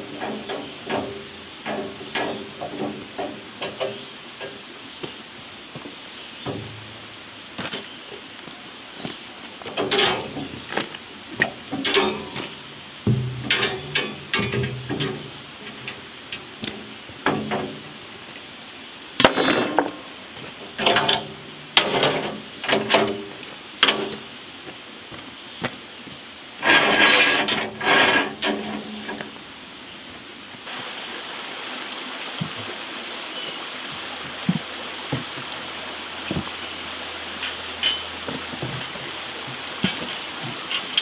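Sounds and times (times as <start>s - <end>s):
rebar rattling clatter: 0.0s - 4.7s, 9.6s - 18.1s, 19.2s - 24.3s, 26.6s - 29.4s, 36.2s - 41.0s
steel rebar clanking: 0.0s - 4.7s, 6.4s - 7.9s, 9.6s - 18.2s, 19.2s - 24.3s, 26.6s - 29.4s, 36.1s - 41.0s
creek flowing: 0.0s - 41.0s.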